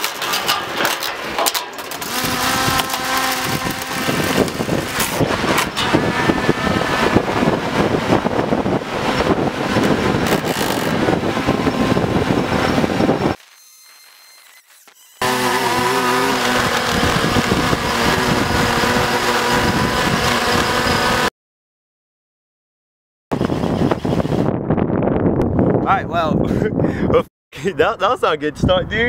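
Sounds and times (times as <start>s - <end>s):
drone motors whirring: 1.8s - 21.3s
wind noise on microphone: 2.0s - 13.4s, 15.2s - 21.3s, 23.3s - 27.3s, 28.4s - 29.0s.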